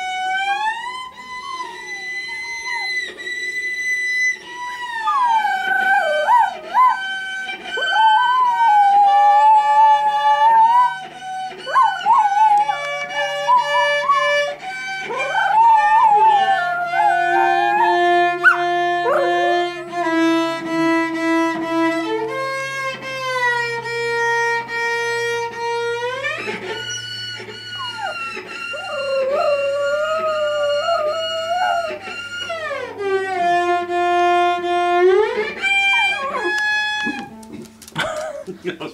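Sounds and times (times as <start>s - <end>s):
dog howling: 0.0s - 20.7s, 26.7s - 34.0s, 35.0s - 37.4s
cello playing long bowed notes: 0.0s - 37.8s.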